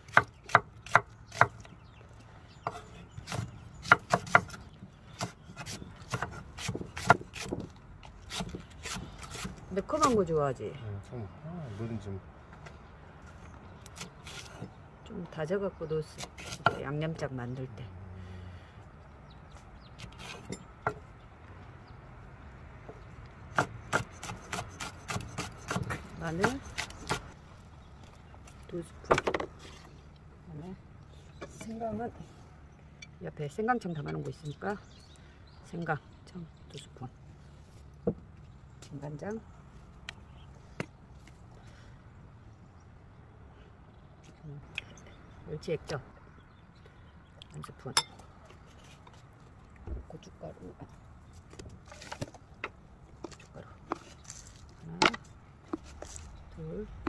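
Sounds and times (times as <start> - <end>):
knife chopping on wooden board: 2.7 - 4.6.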